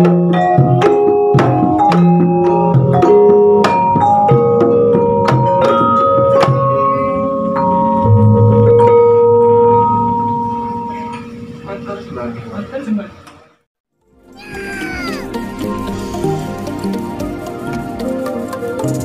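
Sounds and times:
hand drum: 0.0 - 6.8, 14.4 - 19.0.

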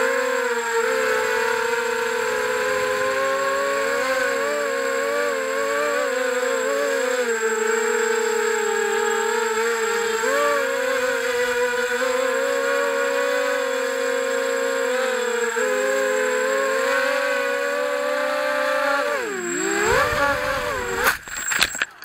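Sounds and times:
drone motors whining: 0.0 - 22.0
drone crashing into bush: 19.7 - 21.8.

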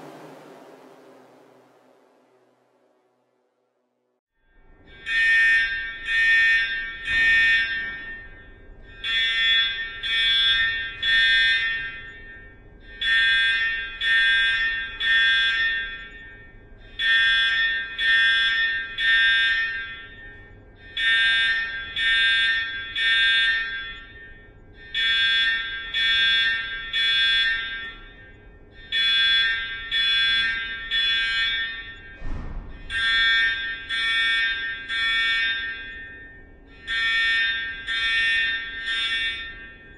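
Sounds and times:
faint steady hum: 0.0 - 5.0
fire alarm beeping: 4.6 - 39.9.

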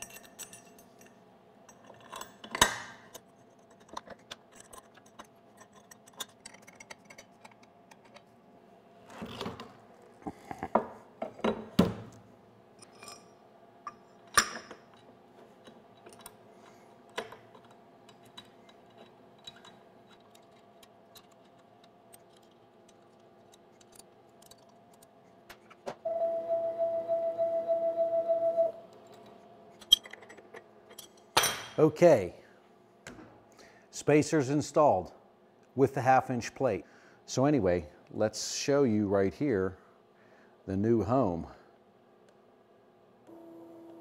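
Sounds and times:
metal parts clinking and knocking: 0.0 - 8.2, 17.1 - 25.1, 29.8 - 31.7.

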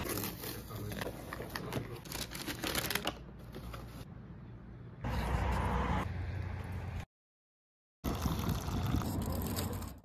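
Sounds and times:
paper packaging crinkling: 0.0 - 4.0.

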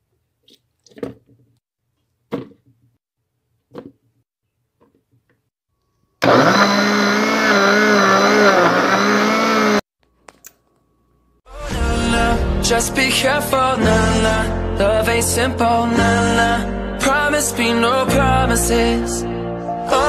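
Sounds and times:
blender motor running: 6.2 - 9.8.

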